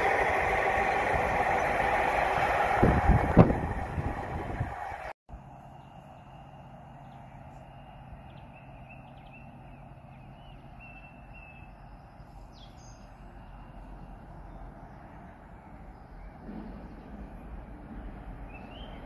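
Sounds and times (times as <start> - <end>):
small birds chirping: 5.6 - 19.0.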